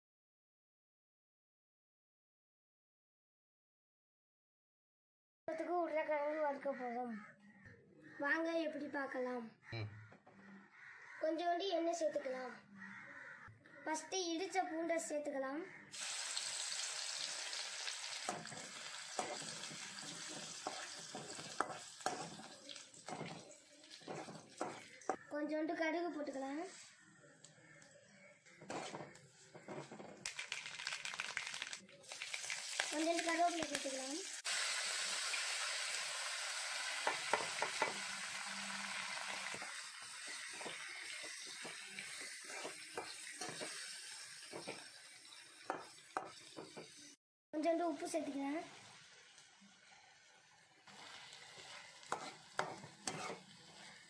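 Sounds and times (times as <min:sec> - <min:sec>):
garlic sizzling in hot oil: 0:15.9 - 0:25.2, 0:30.2 - 0:54.0
spatula scraping and tapping pan: 0:18.2 - 0:25.2, 0:28.6 - 0:30.2, 0:37.0 - 0:38.0, 0:39.5 - 0:44.9, 0:45.6 - 0:47.0, 0:51.0 - 0:54.0.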